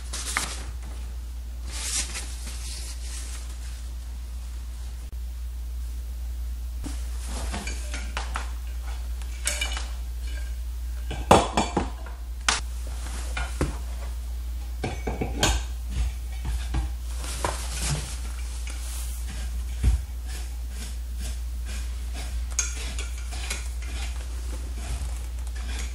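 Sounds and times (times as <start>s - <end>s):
steady low hum: 0.0s - 25.9s
metal tubes knocking and clinking: 7.5s - 12.1s.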